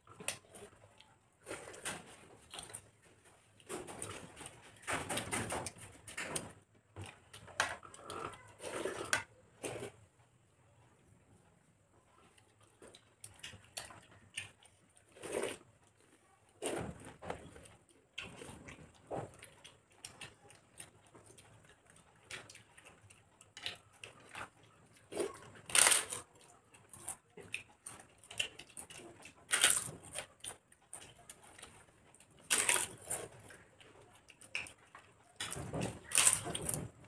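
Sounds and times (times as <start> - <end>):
wet chewing and lip-smacking: 12.2 - 36.9
crisp papad crunching: 32.4 - 33.4.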